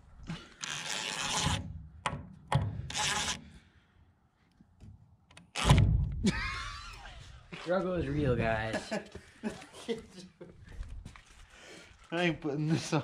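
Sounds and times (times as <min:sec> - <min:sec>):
impact driver driving screw: 0:00.6 - 0:01.7, 0:02.9 - 0:03.4, 0:05.4 - 0:05.9.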